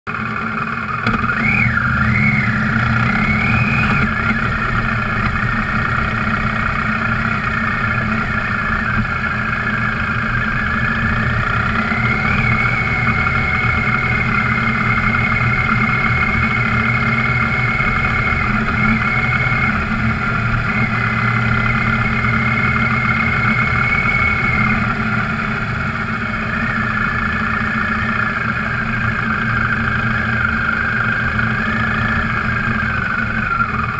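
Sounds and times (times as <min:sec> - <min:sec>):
off-road vehicle engine running: 0:00.0 - 0:33.9.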